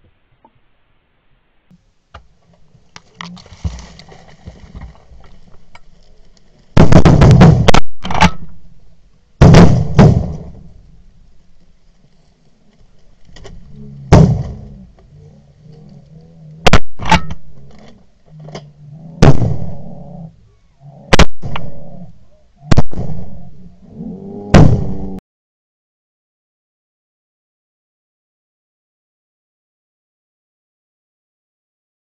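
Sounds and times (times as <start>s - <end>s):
shotgun blasts: 6.8s - 8.6s, 9.4s - 10.7s, 14.1s - 14.6s, 16.6s - 17.5s, 19.2s - 19.8s, 21.1s - 21.7s, 22.6s - 23.4s, 24.5s - 25.2s.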